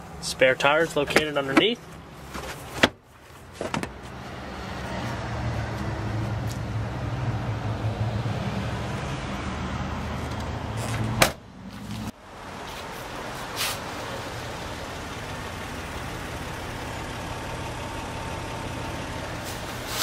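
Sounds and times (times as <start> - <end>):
car engine humming: 0.0 - 20.0
trunk lid slamming: 3.6 - 4.0.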